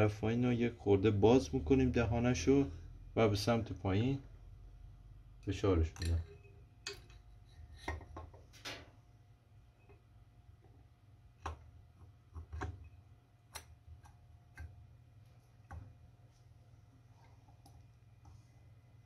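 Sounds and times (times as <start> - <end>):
faint metal clicks and knocks: 5.9 - 9.0, 11.4 - 14.8.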